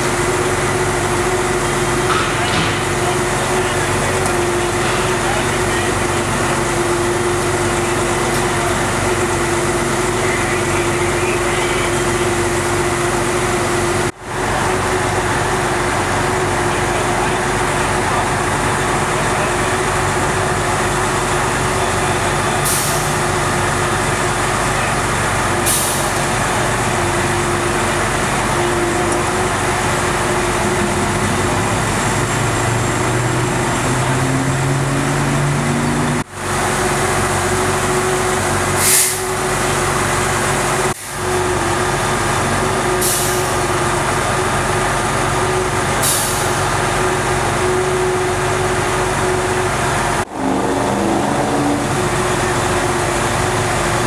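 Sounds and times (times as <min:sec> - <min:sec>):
diesel engine idling: 0:00.0 - 0:54.0
short air hisses: 0:38.8 - 0:39.2.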